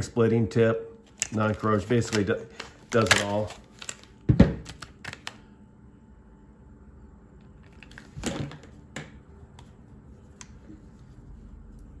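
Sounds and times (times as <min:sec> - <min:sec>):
clicks and knocks of plastic packaging: 0:01.1 - 0:05.4.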